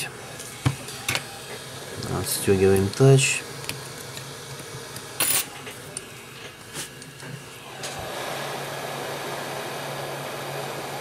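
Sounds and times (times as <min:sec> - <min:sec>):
heat gun blowing air: 0:07.5 - 0:11.0.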